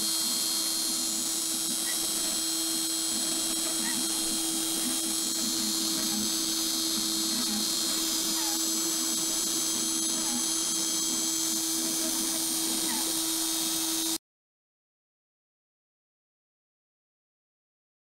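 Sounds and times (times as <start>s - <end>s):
hiss of wood cutting: 0.0s - 14.2s
router spindle whine: 0.0s - 14.2s
steady hum: 0.0s - 14.2s.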